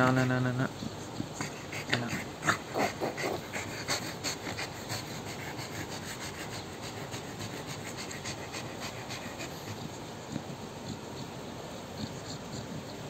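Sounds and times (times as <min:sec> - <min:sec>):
dog panting: 0:00.0 - 0:13.0.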